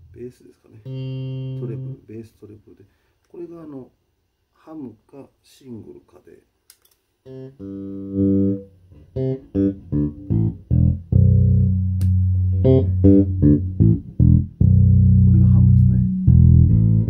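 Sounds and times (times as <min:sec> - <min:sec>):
electric bass plucked notes: 0:00.8 - 0:02.0, 0:07.3 - 0:17.0.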